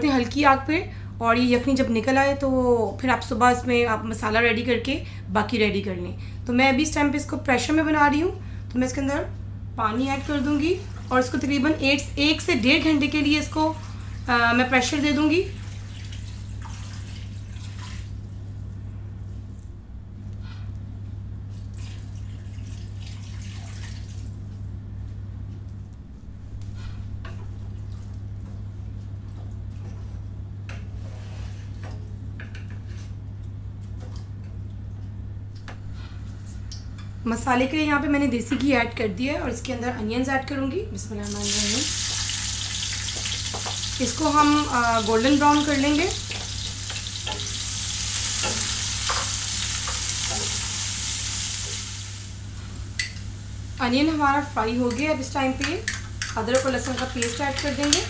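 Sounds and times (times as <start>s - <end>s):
steady low hum: 0.0s - 23.1s, 24.1s - 58.0s
onions sizzling in pot: 41.2s - 56.2s.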